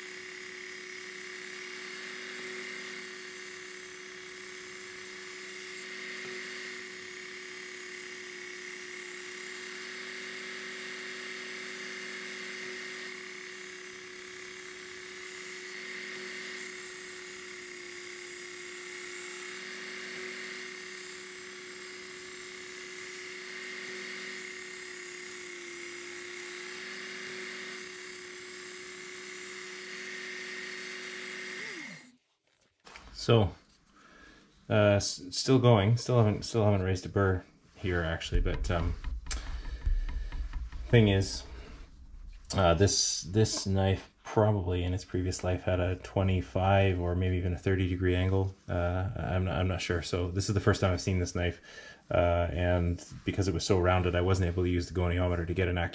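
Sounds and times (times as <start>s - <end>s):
motor winding down: 0.0s - 32.2s, 38.2s - 43.7s
belt sharpener motor whine: 0.0s - 32.6s, 38.3s - 42.7s.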